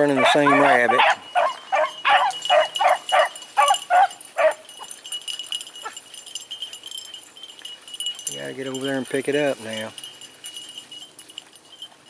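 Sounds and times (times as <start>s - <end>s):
dogs baying: 0.0s - 9.0s.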